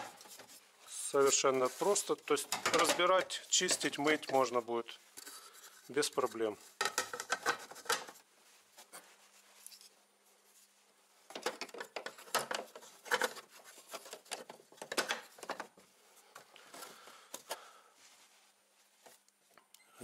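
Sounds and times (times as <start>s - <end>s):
hard plastic parts clicking and knocking: 2.4s - 4.4s, 6.8s - 8.2s, 11.3s - 15.8s.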